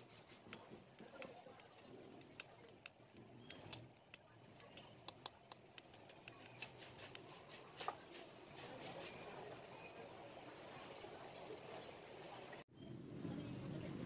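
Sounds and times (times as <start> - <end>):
small metal parts clicking and tapping: 0.4 - 7.3.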